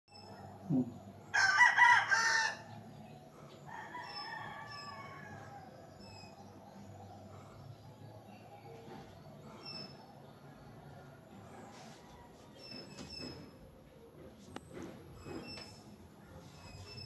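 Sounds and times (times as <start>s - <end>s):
rooster crowing: 1.3s - 2.8s, 3.6s - 6.0s.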